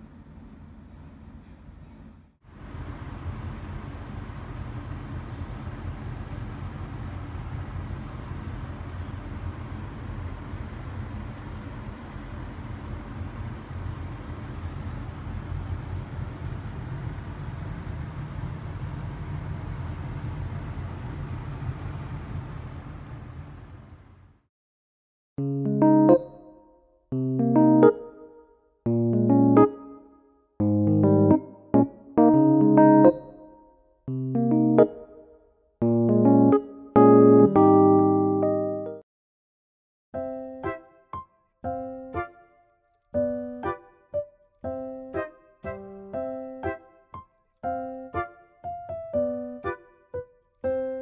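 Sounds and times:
distant traffic rumble: 2.6 - 24.1.

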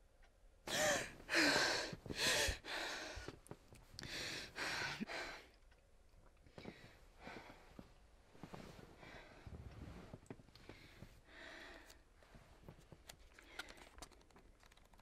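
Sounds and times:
girl gasping: 0.7 - 3.3
girl panting heavily: 0.7 - 3.4, 4.0 - 5.5, 10.7 - 12.1.

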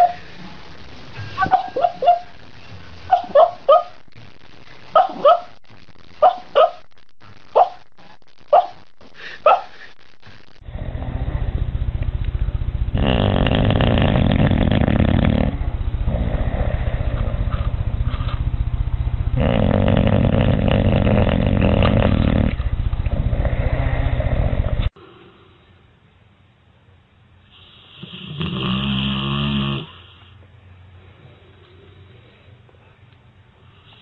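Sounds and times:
dog snoring loudly: 10.6 - 11.6, 12.9 - 17.6, 19.4 - 24.9, 27.8 - 30.0.

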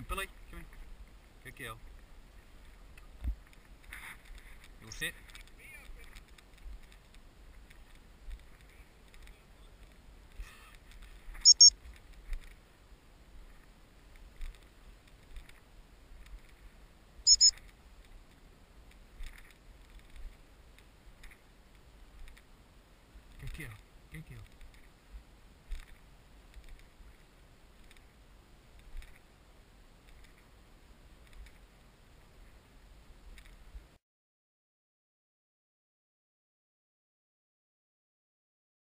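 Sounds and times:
faint low background noise: 0.0 - 34.0
high-pitched whistle blasts: 11.5 - 11.7, 17.3 - 17.5.

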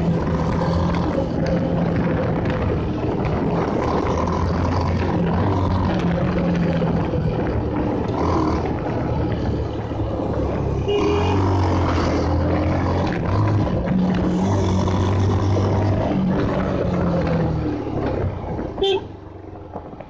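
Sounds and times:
motorcycle engine running: 0.0 - 20.0
wind and road noise: 0.0 - 20.0
horn sounding: 10.9 - 11.6, 18.8 - 19.2.

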